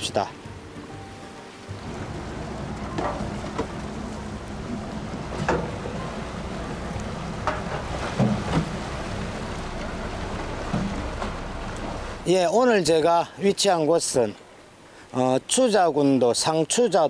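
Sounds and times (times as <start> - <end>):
boat engine running: 0.0 - 12.3.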